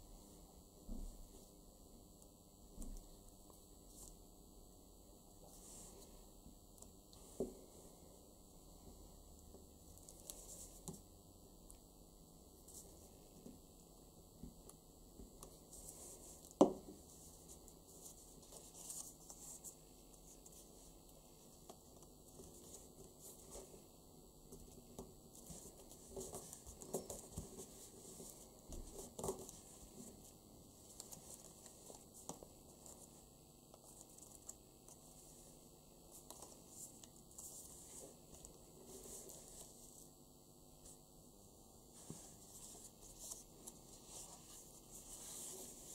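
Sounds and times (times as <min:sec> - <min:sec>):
paper rustling and folding: 0:42.0 - 0:45.9.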